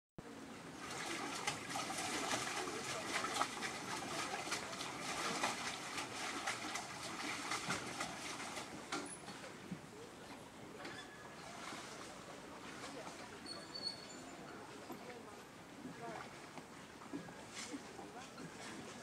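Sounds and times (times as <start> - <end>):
rushing water: 0.3 - 13.9.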